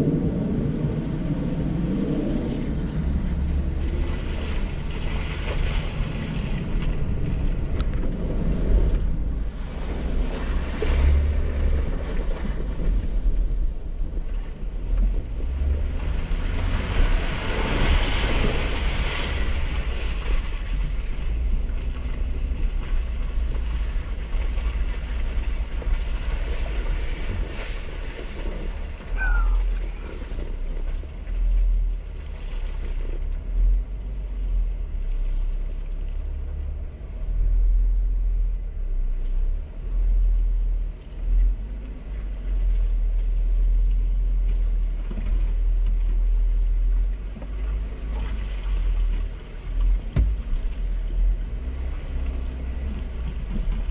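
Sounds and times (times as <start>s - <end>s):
vehicle rumbling on muddy track: 0.0s - 53.9s
water splashing: 1.5s - 37.5s, 40.5s - 53.9s.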